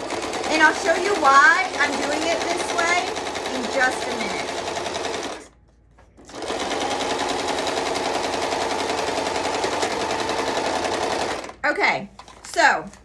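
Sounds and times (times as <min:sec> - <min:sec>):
sewing machine running: 0:00.0 - 0:05.5, 0:06.2 - 0:11.6.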